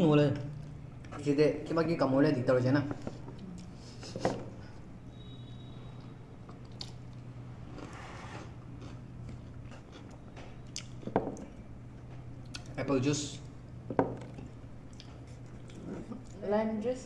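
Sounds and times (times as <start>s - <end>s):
steady low hum: 0.0s - 17.0s
people chewing food: 3.1s - 4.9s, 6.0s - 12.8s, 13.4s - 16.4s.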